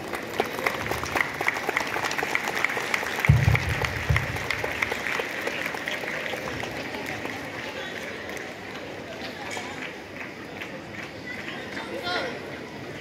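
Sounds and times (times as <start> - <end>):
crowd applauding: 0.0 - 12.2
low thumps: 3.3 - 4.9.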